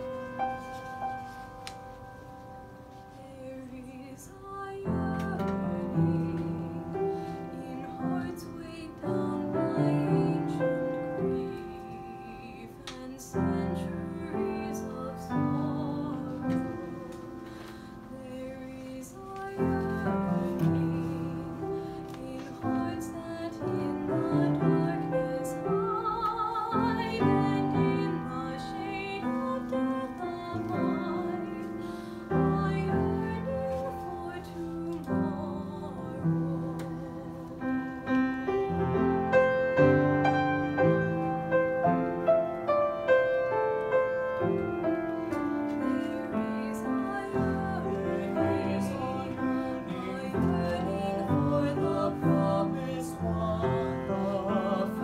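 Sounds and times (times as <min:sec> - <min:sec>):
piano accompaniment: 0:00.0 - 0:55.0
woman singing with vibrato: 0:03.1 - 0:37.9, 0:45.6 - 0:55.0
man singing: 0:47.9 - 0:55.0.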